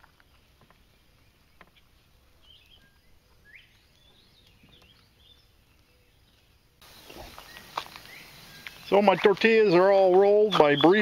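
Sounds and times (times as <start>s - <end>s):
distant bird chirps: 0.1s - 11.0s.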